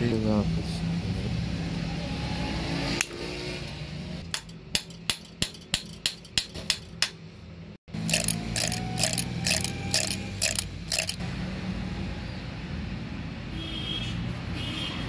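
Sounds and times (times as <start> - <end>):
small metal clicks: 8.0 - 11.2.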